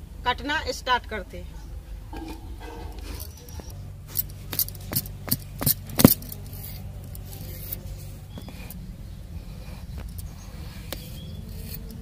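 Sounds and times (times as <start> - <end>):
low steady hum: 0.0 - 12.0
blade cutting gourd: 10.8 - 12.0.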